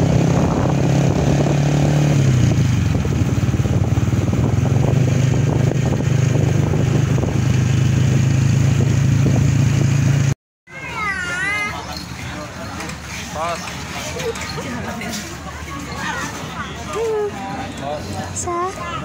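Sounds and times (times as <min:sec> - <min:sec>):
vehicle engine running: 0:00.0 - 0:10.4.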